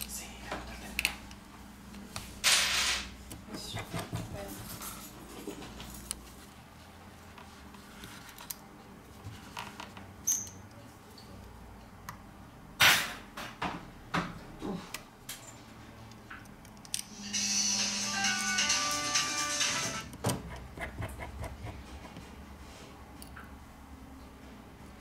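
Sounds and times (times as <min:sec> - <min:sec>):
background music: 0:17.1 - 0:20.1.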